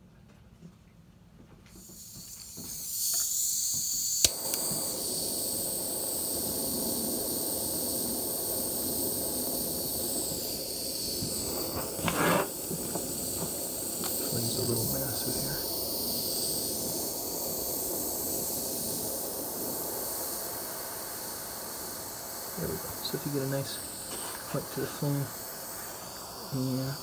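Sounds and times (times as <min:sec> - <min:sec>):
gas torch hissing: 0:01.7 - 0:27.0
torch igniter click: 0:01.9 - 0:16.2.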